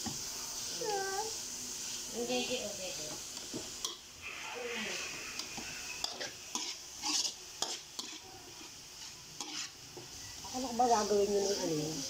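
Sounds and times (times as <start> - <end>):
tofu sizzling: 0.0 - 12.0
metal spatula scraping a wok: 3.8 - 9.8.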